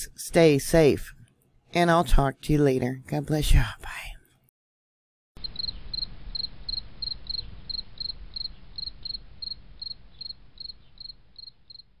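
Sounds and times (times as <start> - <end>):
high rhythmic chirping: 5.4 - 11.8.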